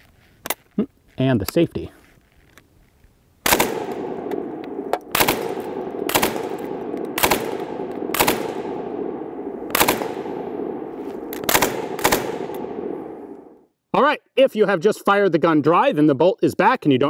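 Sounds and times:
gunfire echo: 3.4 - 13.6
machine gun firing short bursts: 5.1 - 8.7, 11.4 - 12.6.

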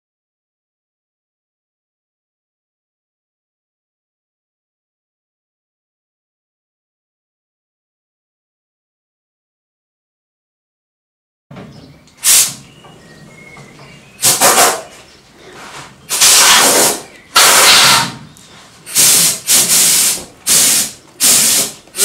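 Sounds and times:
short bursts of hissing spray: 12.2 - 12.7, 14.2 - 14.9, 16.1 - 18.1, 18.9 - 22.0.

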